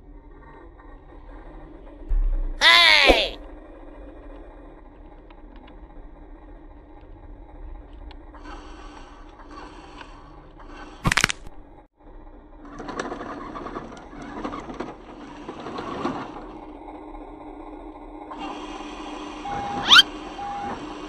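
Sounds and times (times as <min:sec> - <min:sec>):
sharp crack: 0:11.0 - 0:11.6.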